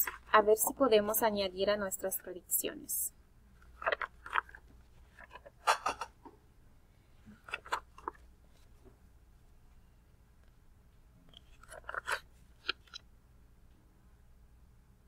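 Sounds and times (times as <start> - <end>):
paper pages rustling: 3.6 - 5.8, 7.3 - 8.8, 11.3 - 13.0.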